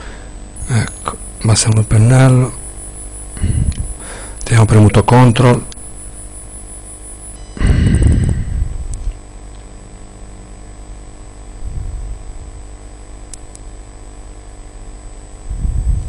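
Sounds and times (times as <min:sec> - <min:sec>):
low rumbling microphone bursts: 0:00.0 - 0:08.9
electrical hum: 0:00.0 - 0:16.0.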